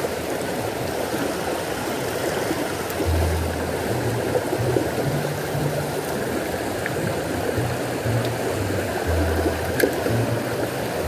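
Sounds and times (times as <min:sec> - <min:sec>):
stream running over rocks: 0:00.0 - 0:11.0
low bass background music: 0:03.0 - 0:11.0.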